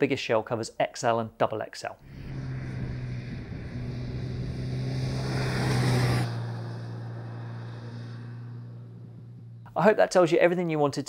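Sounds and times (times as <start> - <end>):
motorcycle engine passing: 2.0 - 9.8
road noise: 2.0 - 10.0.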